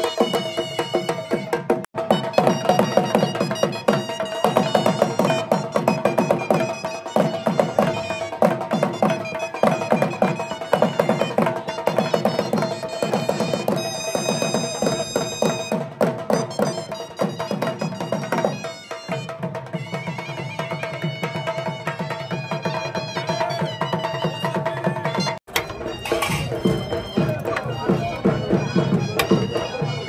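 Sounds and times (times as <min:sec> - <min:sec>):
barrel drum fast rhythm: 0:00.0 - 0:30.0
melody instrument holding notes: 0:25.5 - 0:30.0.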